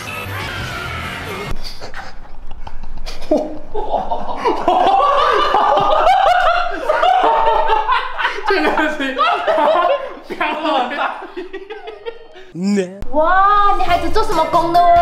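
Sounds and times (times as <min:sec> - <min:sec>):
men laughing: 0:01.6 - 0:13.0.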